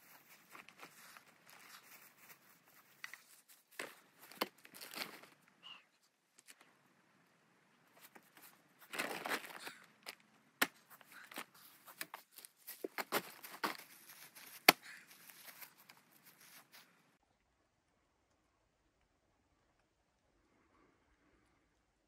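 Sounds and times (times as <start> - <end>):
footsteps through dry grass: 0.0 - 5.4, 8.0 - 9.8, 10.8 - 17.0
plastic tarp rustling: 8.8 - 9.8.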